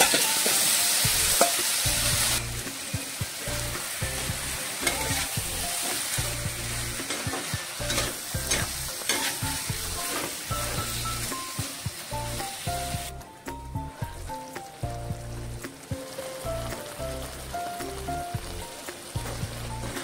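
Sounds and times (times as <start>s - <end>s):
metal spatula scraping a pan: 0.0s - 2.5s, 4.2s - 11.3s
chicken sizzling in a wok: 0.0s - 20.0s.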